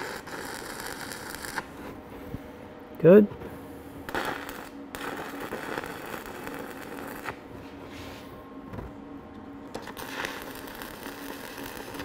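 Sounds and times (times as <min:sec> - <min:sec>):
welding arc crackling: 0:00.0 - 0:01.8, 0:04.1 - 0:07.5, 0:09.7 - 0:12.0.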